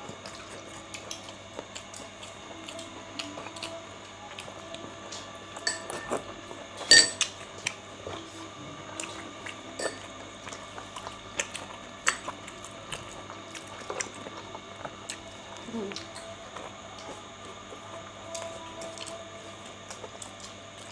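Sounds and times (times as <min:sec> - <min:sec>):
cutlery clinking against dishes: 0:05.6 - 0:06.2, 0:06.8 - 0:07.3, 0:09.8 - 0:10.1.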